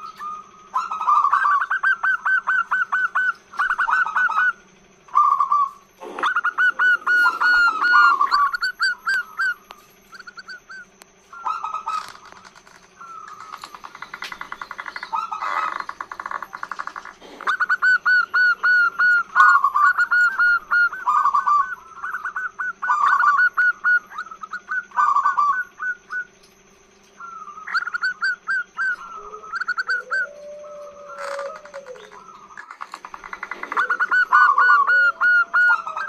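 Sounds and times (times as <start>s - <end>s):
dove cooing: 0.0s - 26.3s, 27.2s - 36.0s.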